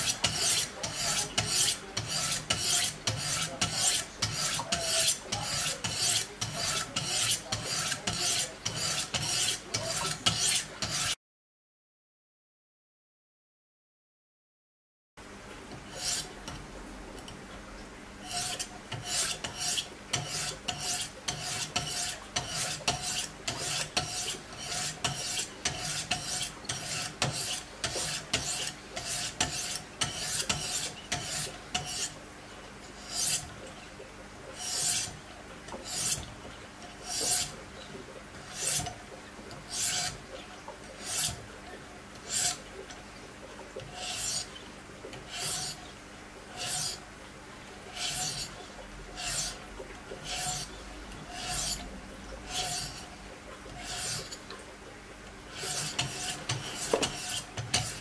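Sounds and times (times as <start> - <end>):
sharpening stone scraping knife: 0.0 - 11.2, 15.9 - 16.3, 18.2 - 32.2, 33.0 - 33.5, 34.6 - 35.2, 35.8 - 36.3, 37.0 - 37.6, 38.4 - 39.0, 39.7 - 40.2, 41.0 - 41.4, 42.3 - 42.6, 43.8 - 44.5, 45.2 - 45.8, 46.5 - 47.0, 47.9 - 48.6, 49.2 - 49.6, 50.2 - 51.9, 52.5 - 53.1, 53.7 - 54.4, 55.5 - 58.0.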